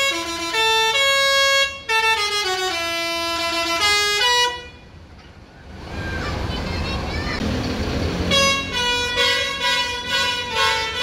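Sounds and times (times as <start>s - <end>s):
musical air horn playing a tune: 0.0s - 4.8s, 8.3s - 11.0s.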